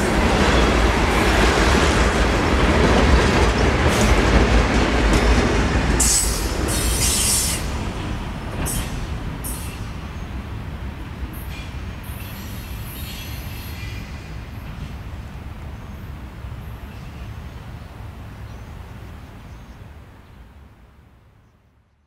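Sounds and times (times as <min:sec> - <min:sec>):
freight train rumbling: 0:00.0 - 0:21.0
wheels squealing on rails: 0:05.2 - 0:10.4, 0:11.3 - 0:14.8.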